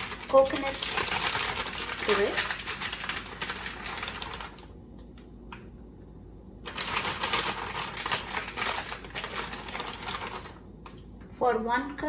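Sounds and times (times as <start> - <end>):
plastic packet crackling: 0.0 - 4.8, 6.6 - 11.0.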